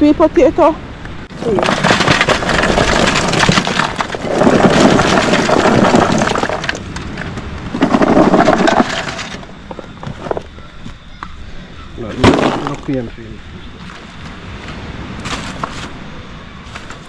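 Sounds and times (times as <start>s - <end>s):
charcoal tumbling and clattering: 1.3s - 10.6s, 12.0s - 13.2s, 15.2s - 16.0s, 16.6s - 17.0s.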